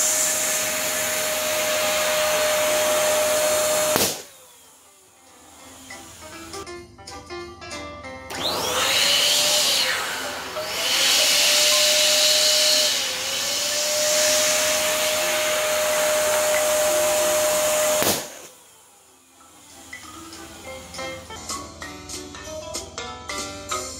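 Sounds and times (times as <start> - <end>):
balloon pump hissing and whistling: 0.0 - 4.6, 8.3 - 18.6
balloon bursting pop: 3.9 - 4.3, 17.9 - 18.4.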